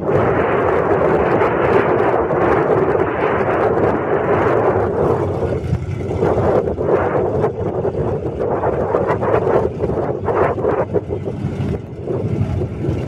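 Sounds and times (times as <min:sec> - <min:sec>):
wind buffeting microphone: 0:00.0 - 0:13.0
truck engine idling: 0:05.0 - 0:06.8.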